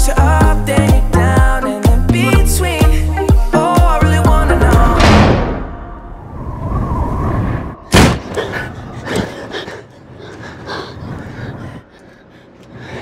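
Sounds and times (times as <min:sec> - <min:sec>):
low rumbling: 0:04.2 - 0:12.9
loud thump: 0:04.8 - 0:06.0, 0:07.9 - 0:08.3.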